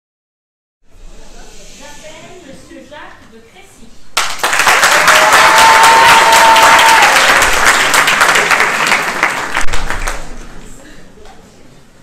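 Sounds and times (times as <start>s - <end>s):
audience applauding: 4.2s - 10.4s.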